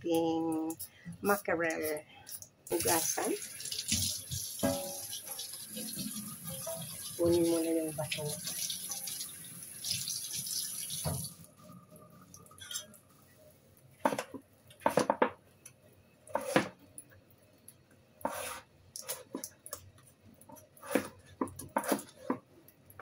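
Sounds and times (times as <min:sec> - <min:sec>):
tap water running: 0:02.7 - 0:11.5
knife cutting carrot on board: 0:16.3 - 0:16.8, 0:18.2 - 0:19.4, 0:20.8 - 0:22.4.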